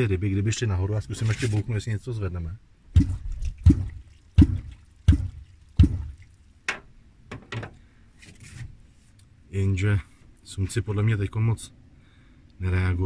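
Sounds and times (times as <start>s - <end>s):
wooden clonk striking water: 2.9s - 6.9s.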